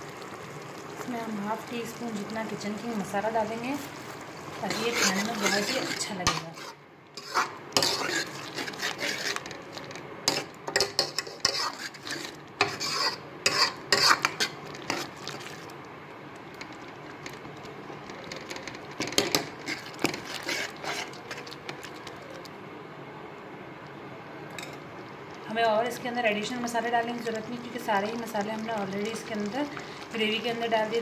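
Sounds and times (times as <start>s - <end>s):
spoon scraping metal pan: 4.6s - 9.6s, 10.3s - 15.1s, 19.1s - 21.5s.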